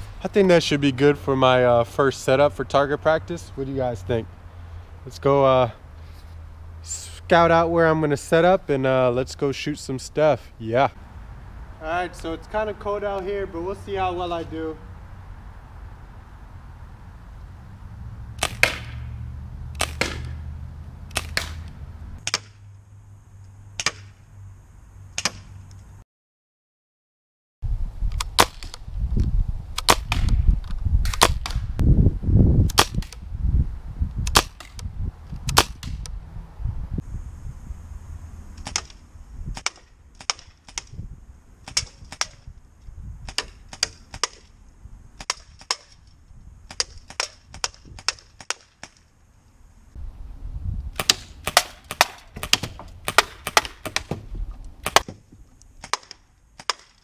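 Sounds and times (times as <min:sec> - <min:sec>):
bb rifle pops: 0:18.4 - 0:19.0, 0:34.2 - 0:34.8, 0:51.0 - 0:54.2.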